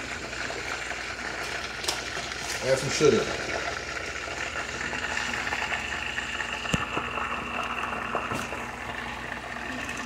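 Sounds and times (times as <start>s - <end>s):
chicken sizzling in a pan: 1.6s - 3.6s.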